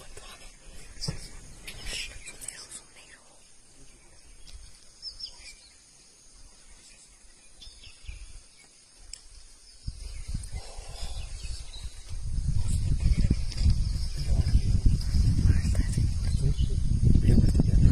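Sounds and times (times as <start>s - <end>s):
low rumbling on microphone: 9.8s - 17.9s.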